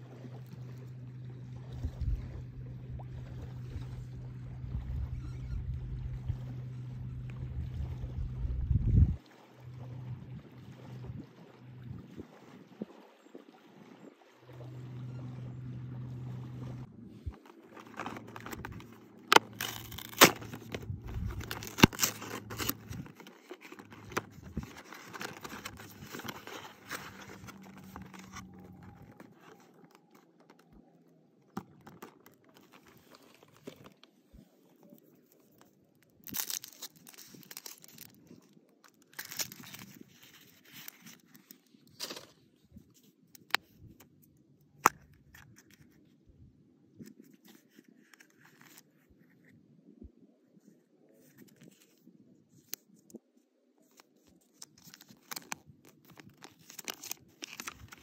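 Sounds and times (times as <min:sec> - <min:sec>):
wrapper rustling and clicks: 0:17.3 - 0:30.8, 0:31.6 - 0:34.1, 0:35.3 - 0:42.4, 0:53.9 - 0:58.0
cardboard box tearing: 0:17.7 - 0:28.5, 0:36.2 - 0:38.1.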